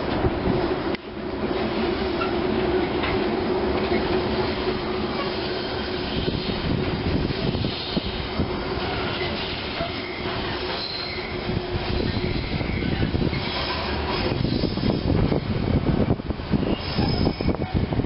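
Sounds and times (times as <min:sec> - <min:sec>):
freight wagons rumbling on rails: 0:00.0 - 0:18.0
faint wheel squeals: 0:08.8 - 0:11.4, 0:16.6 - 0:17.8.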